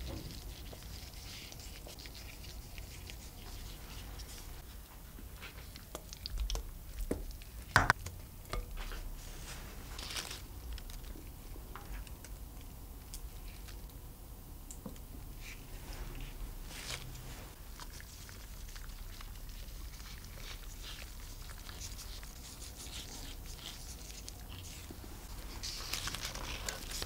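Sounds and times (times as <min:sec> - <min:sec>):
shredded cheese pattering down: 0:17.6 - 0:27.0.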